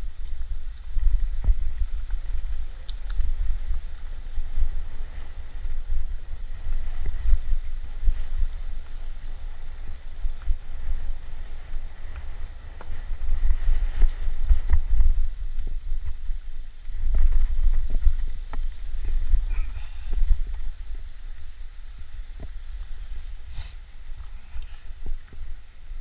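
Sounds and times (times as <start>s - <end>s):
wind buffeting microphone: 0.0s - 26.0s
faint clicks: 2.0s - 3.3s.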